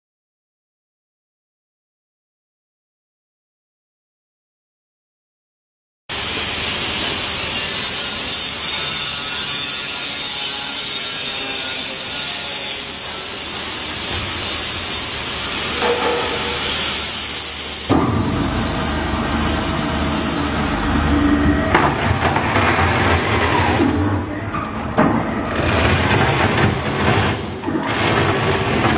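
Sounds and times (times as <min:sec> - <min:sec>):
machinery hissing and rasping: 0:06.1 - 0:24.0
deep rumble: 0:17.9 - 0:26.2.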